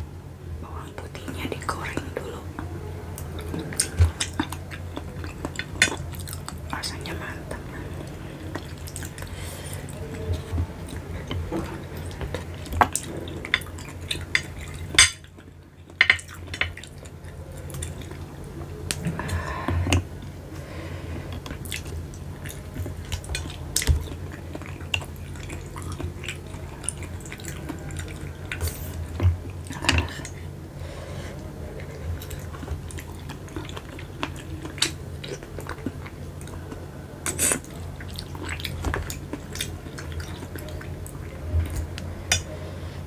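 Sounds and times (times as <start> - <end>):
steady low hum: 0.0 - 43.0
chewing: 1.6 - 42.6.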